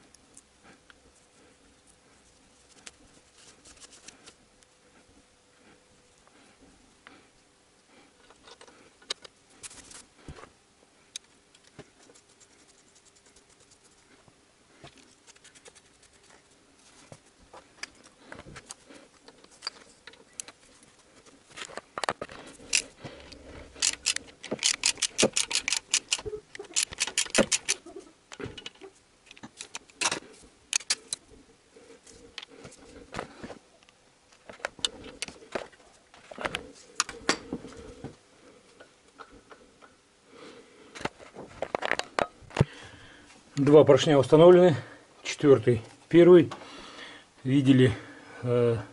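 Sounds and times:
ratchet wrench clicking: 23.8 - 27.8.

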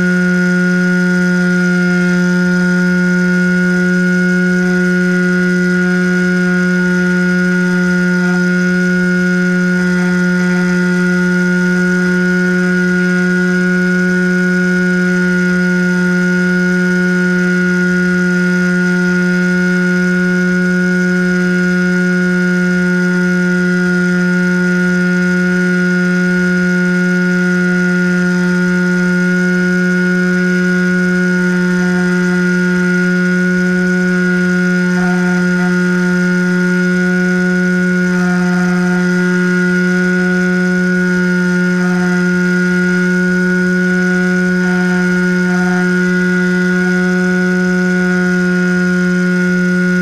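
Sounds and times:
model plane motor droning: 0.0 - 50.0.

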